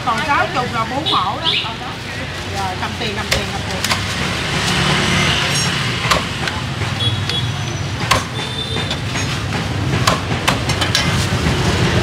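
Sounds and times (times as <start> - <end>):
street traffic rumbling: 0.0 - 12.0
sharp knocks: 5.9 - 7.4, 8.0 - 11.2.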